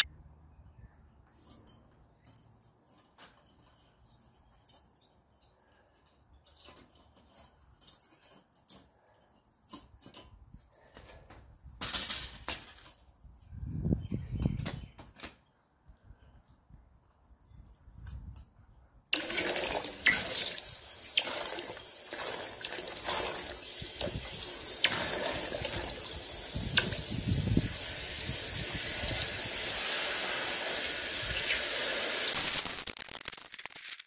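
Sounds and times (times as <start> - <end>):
burst of hiss: 19.8 - 33.8.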